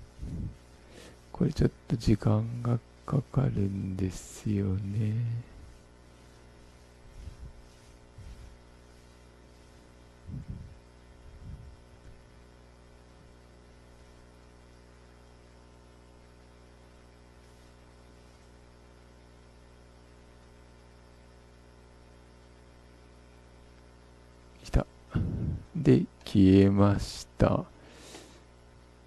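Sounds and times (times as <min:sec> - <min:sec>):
electrical mains hum: 0:00.0 - 0:29.0
soft low thumps: 0:10.2 - 0:12.4.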